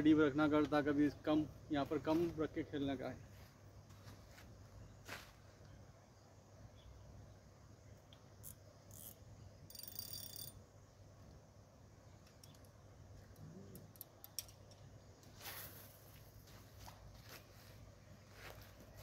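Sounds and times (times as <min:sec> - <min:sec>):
fishing reel rattling whirr: 0:08.4 - 0:10.6.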